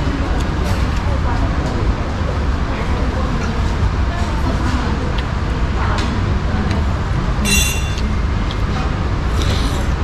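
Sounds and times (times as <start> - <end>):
low traffic rumble: 0.0 - 10.0
metal spoon clinking on dish: 7.4 - 8.2.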